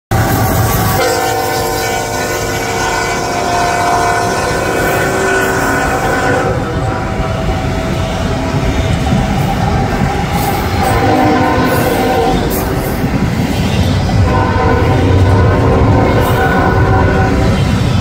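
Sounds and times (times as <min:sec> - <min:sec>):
rumble of passing train: 0:00.1 - 0:18.0
locomotive air horn: 0:00.2 - 0:09.7, 0:10.4 - 0:13.0, 0:14.2 - 0:17.8.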